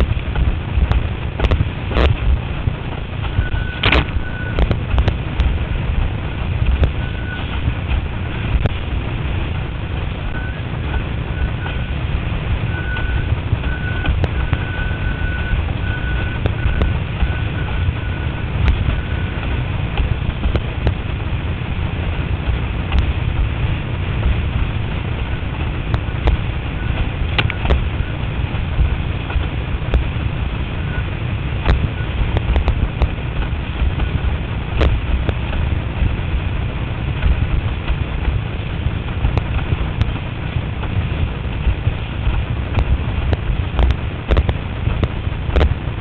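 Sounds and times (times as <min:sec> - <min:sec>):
water rushing and slapping: 0:00.0 - 0:46.0
wind buffeting microphone: 0:00.0 - 0:46.0
faint high whistle: 0:12.7 - 0:18.2.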